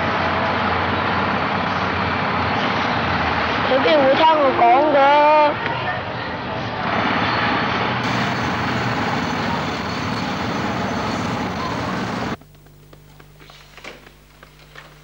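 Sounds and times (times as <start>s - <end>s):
loud steady vehicle noise: 0.0s - 12.4s
faint steady hum: 8.0s - 15.0s.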